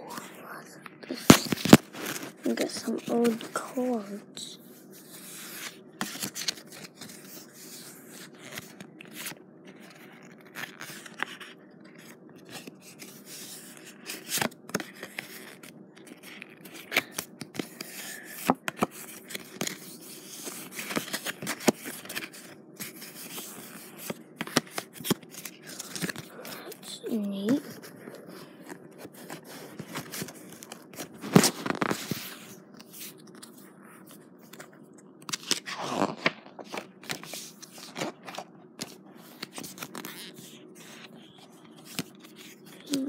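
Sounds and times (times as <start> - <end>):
playing cards snapping and scraping: 1.1 - 2.3, 29.1 - 33.6, 34.5 - 41.0.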